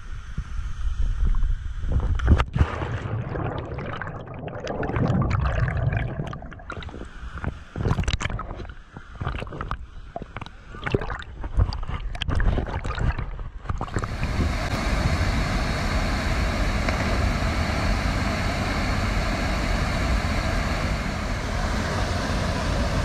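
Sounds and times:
underwater bubbling and clicking: 2.7 - 7.0, 7.8 - 14.2.

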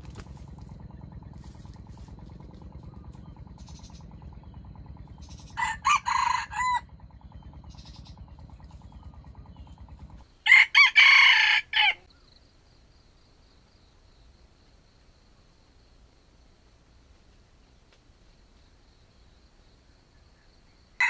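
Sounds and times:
low pulsing rumble: 0.0 - 11.0
rooster crowing: 5.5 - 6.9, 10.4 - 12.1.

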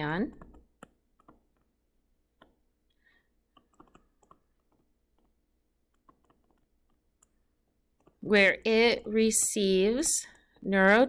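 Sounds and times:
stylus tapping on tablet screen: 0.4 - 2.7, 3.4 - 8.2.

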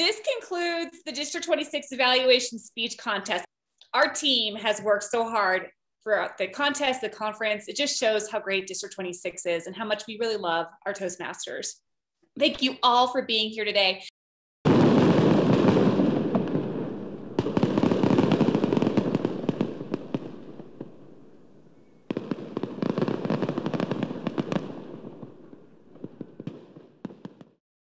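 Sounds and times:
fireworks crackling and popping: 14.7 - 27.6.

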